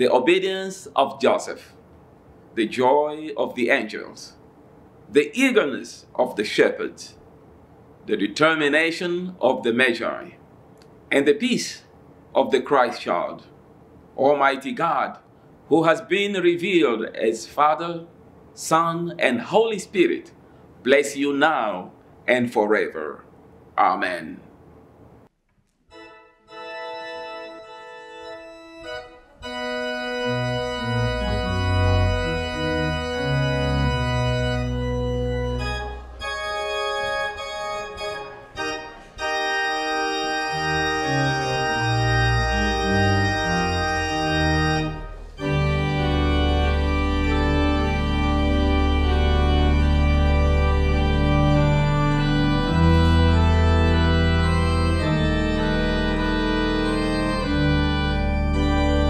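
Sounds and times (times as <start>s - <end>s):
organ playing sustained chords: 25.9s - 59.0s.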